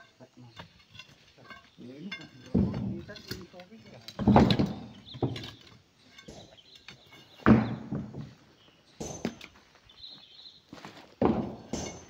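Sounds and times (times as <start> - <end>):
hammer striking a boulder: 11.2 - 12.0.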